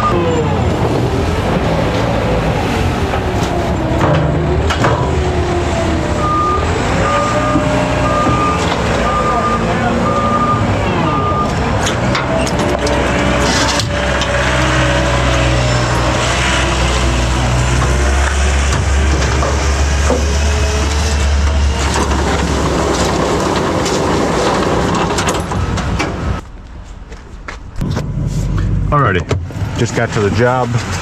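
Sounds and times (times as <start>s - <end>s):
engine low drone: 0.0s - 31.0s
rough machine noise with knocks: 0.7s - 9.3s, 11.7s - 26.5s.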